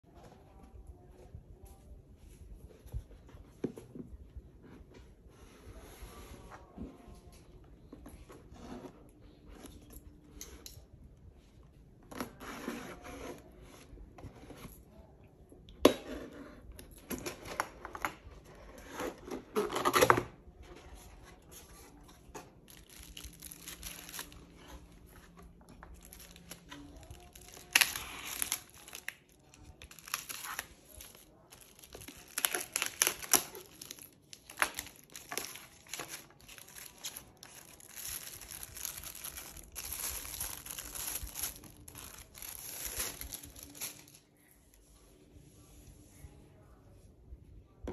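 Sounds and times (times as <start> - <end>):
plastic wrapping crinkling: 22.5 - 44.3
packing tape tearing: 26.0 - 29.2, 29.8 - 44.2.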